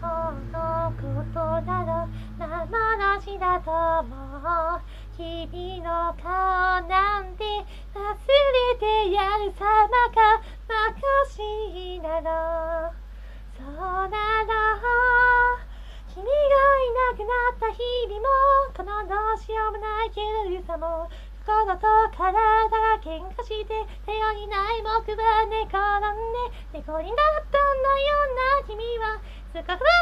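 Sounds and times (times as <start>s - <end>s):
high voice singing with vibrato: 0.0s - 13.0s.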